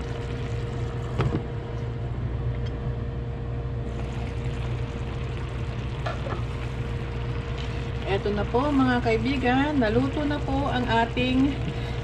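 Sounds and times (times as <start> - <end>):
broth bubbling in a pan: 0.0 - 1.3, 3.9 - 12.0
steady low hum: 0.0 - 12.0.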